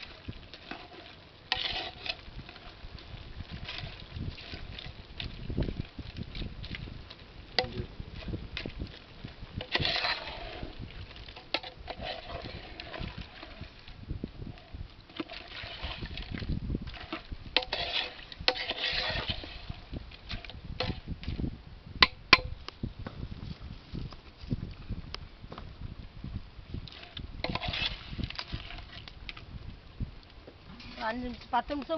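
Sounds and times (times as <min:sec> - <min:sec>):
ladle stirring and scraping pot: 0:00.0 - 0:21.4, 0:26.8 - 0:29.4.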